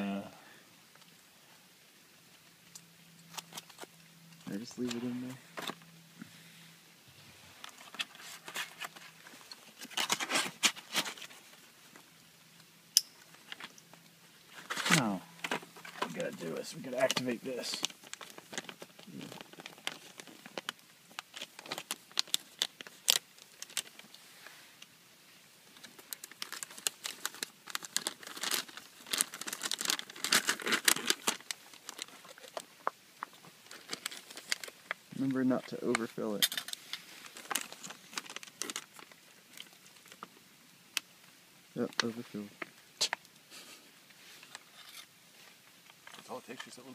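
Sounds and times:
packaging rustling and crinkling: 3.2 - 5.9, 7.5 - 12.1, 13.3 - 24.6, 25.6 - 40.3.

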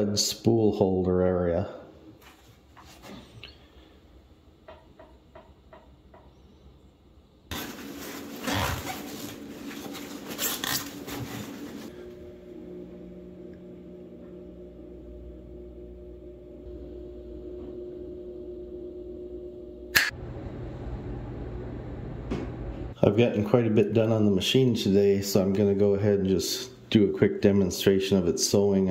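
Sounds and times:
low steady hum: 0.0 - 28.9
paper towel rustling: 7.5 - 12.0.

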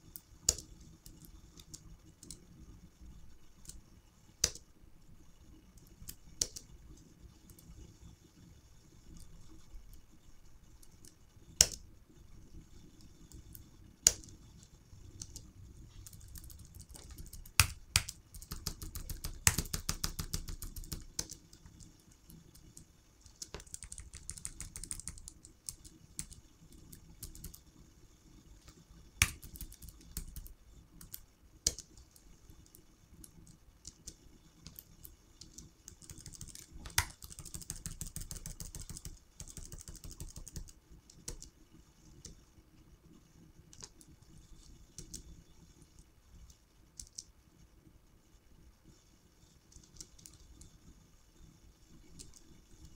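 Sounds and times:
computer keyboard key taps: 16.4 - 21.9, 23.4 - 26.4, 29.2 - 31.9, 35.5 - 41.5.

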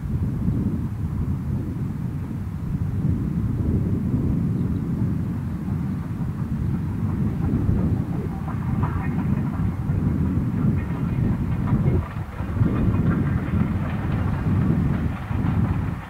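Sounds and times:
steam train rumbling past: 0.0 - 16.0
faint rattling: 5.6 - 16.0.

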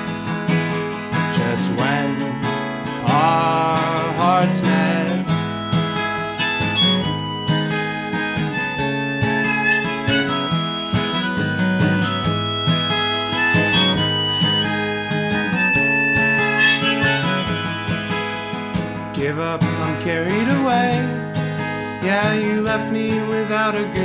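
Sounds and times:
acoustic guitar: 0.0 - 24.0
lead melody of held notes: 5.2 - 18.7.

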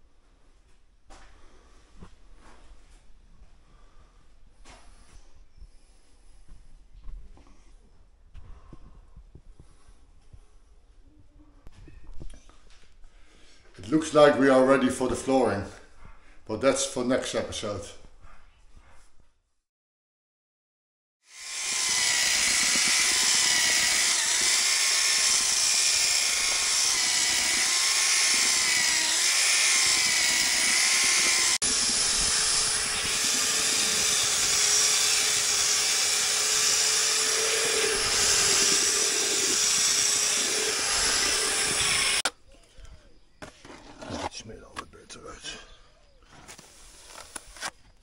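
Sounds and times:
electric power tool motor whine: 21.3 - 42.3.

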